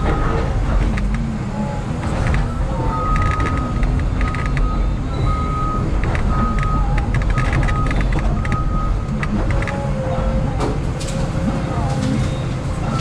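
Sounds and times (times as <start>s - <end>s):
diesel engine rumbling: 0.0s - 13.0s
high beeping tone: 2.4s - 10.4s.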